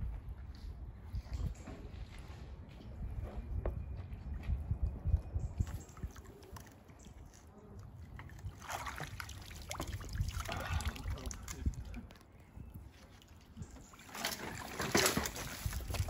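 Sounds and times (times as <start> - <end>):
water sloshing and splashing: 5.6 - 16.0.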